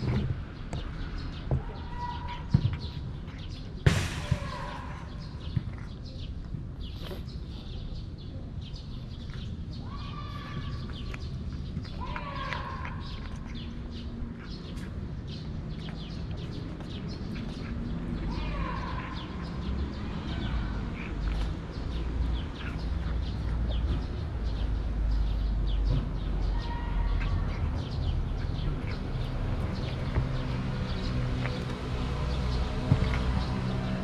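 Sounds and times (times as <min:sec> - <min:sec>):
cat chewing and lapping food: 0:05.4 - 0:08.2, 0:10.4 - 0:34.0.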